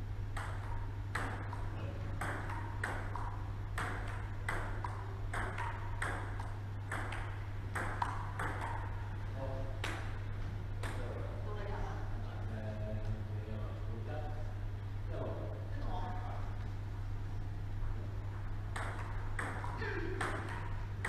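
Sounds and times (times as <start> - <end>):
steady low hum: 0.0 - 21.0
ping pong ball clicking on paddles: 0.3 - 9.0, 9.8 - 10.2, 10.8 - 11.2, 18.7 - 21.0
ball bouncing on table: 0.4 - 9.0, 10.8 - 11.1, 18.7 - 20.8.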